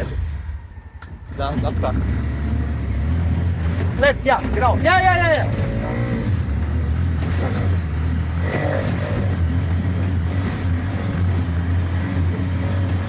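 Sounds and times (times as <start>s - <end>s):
small motorcycle engine running: 1.5s - 13.0s.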